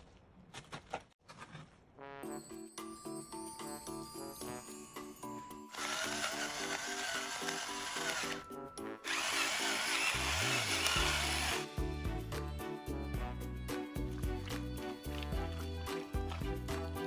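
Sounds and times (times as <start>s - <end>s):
pepper mill grinding: 5.7s - 8.4s
background music with beat: 11.6s - 17.0s.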